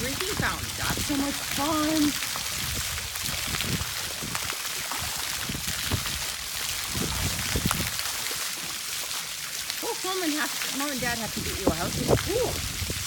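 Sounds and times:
low water splashes: 0.0s - 13.0s
pool water jets spraying: 0.0s - 13.0s
water pattering on deck: 0.0s - 13.0s.

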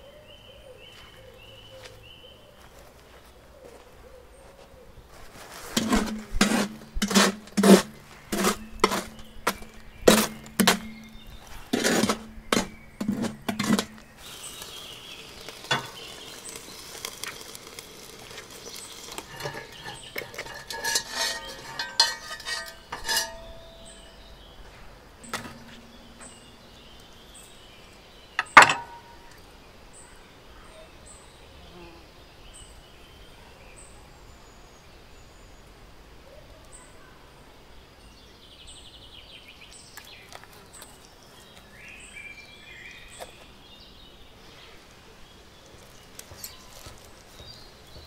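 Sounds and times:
metal scraping: 5.4s - 24.2s, 25.2s - 27.5s, 28.4s - 29.2s
cast iron pot and lid clanking: 5.8s - 14.2s, 15.2s - 24.3s, 25.2s - 27.1s, 28.4s - 29.4s.

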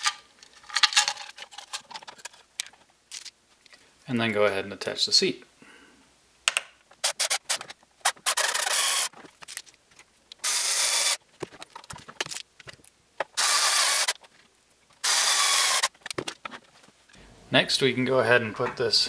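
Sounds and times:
cordless screwdriver driving screws: 8.1s - 9.1s, 13.4s - 14.2s, 15.0s - 15.9s.

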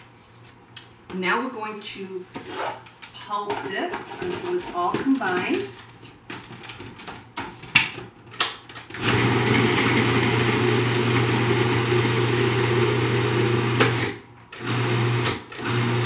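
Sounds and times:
food processor motor running: 9.0s - 16.0s.

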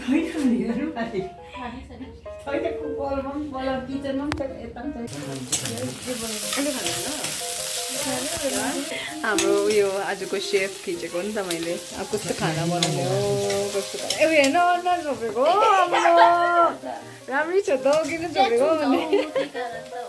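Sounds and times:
onions sizzling in oil: 5.1s - 20.0s.

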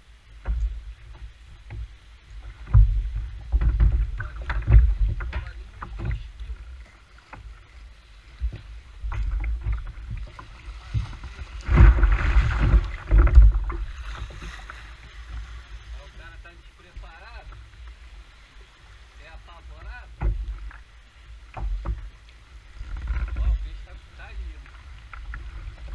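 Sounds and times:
water splashing against kayak hull: 0.0s - 25.9s
wind thumps on microphone: 0.4s - 7.5s, 8.3s - 18.0s, 19.8s - 20.8s.

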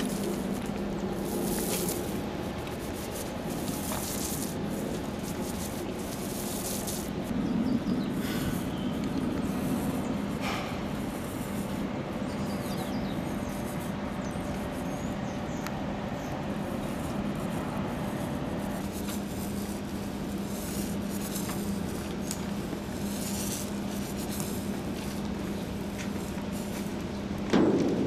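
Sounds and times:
steady low hum: 0.0s - 28.0s
paint roller rubbing on steel: 1.2s - 7.3s, 16.2s - 27.0s.

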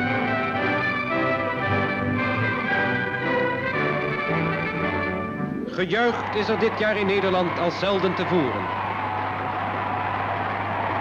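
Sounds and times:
crowd cheering: 5.7s - 11.0s.

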